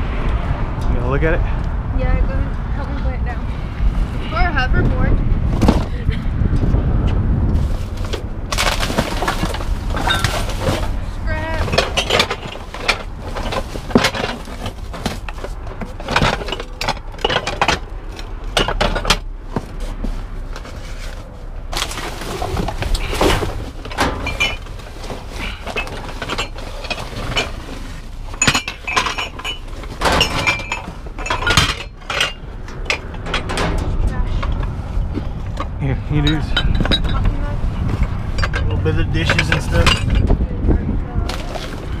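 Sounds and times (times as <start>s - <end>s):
plastic garbage bags rustling: 7.6s - 17.2s, 19.9s - 31.5s, 41.3s - 42.0s
loose trash clattering: 8.0s - 19.3s, 21.7s - 34.2s
knocks and clinks: 8.0s - 19.7s, 21.9s - 34.7s, 35.4s - 40.4s.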